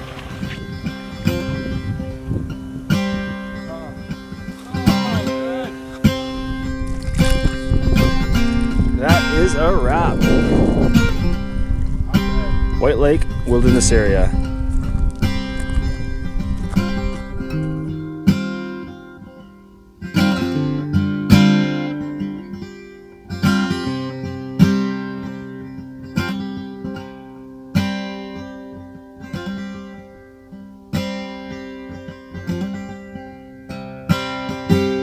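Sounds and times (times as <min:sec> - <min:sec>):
acoustic guitar chords strummed: 0:00.0 - 0:35.0.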